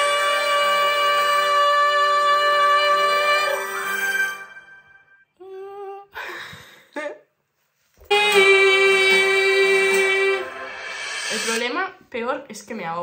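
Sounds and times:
backing track music: 0.0 - 5.2, 8.1 - 11.9
woman singing: 8.1 - 10.6
woman speaking: 11.3 - 13.0.

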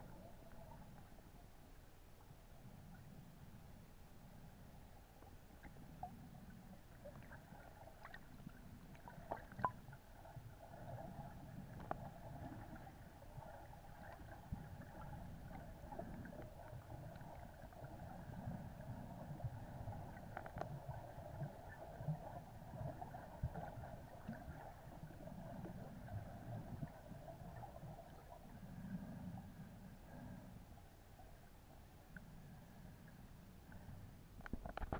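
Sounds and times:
faint steady hum: 0.0 - 34.9
low water movement: 0.0 - 34.9
faint clicks: 20.2 - 20.8.

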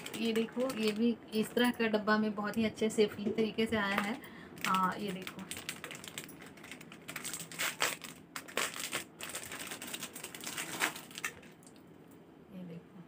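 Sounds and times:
plastic packaging crinkling: 0.0 - 1.5, 4.0 - 11.8.

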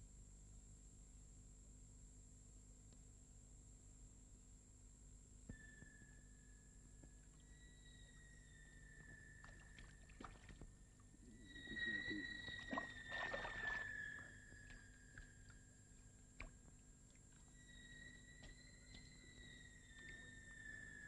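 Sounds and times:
faint high whine: 3.7 - 21.0
water splashing in a bathtub: 9.4 - 10.7, 12.4 - 15.3.

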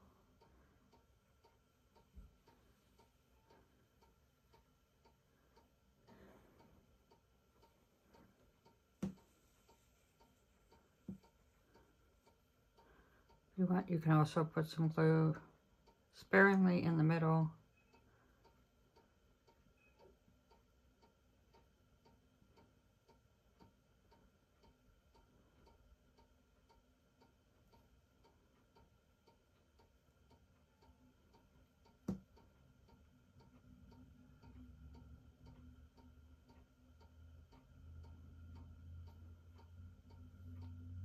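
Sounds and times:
faint steady ticking: 0.0 - 41.0.

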